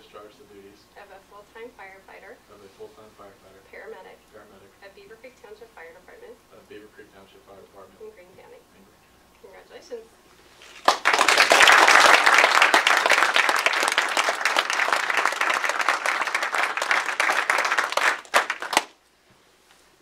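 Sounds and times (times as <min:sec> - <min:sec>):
small audience applauding: 0:10.6 - 0:19.0.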